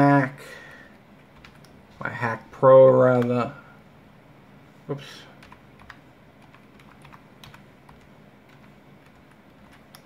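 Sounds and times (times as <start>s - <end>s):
computer keyboard key clicks: 1.4s - 1.8s.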